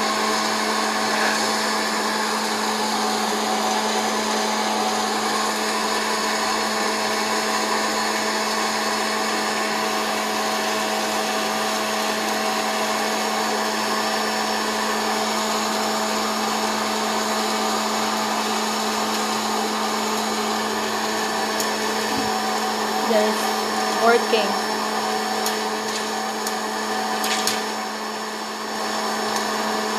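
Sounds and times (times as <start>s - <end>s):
popcorn popper fan rushing air: 0.0s - 29.9s.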